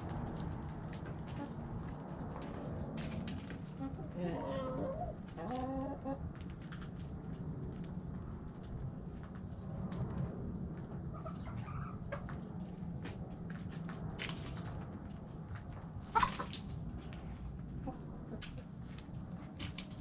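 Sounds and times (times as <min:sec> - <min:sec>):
hens clucking: 0:03.4 - 0:06.4, 0:11.1 - 0:12.4, 0:16.0 - 0:16.8, 0:17.8 - 0:18.6.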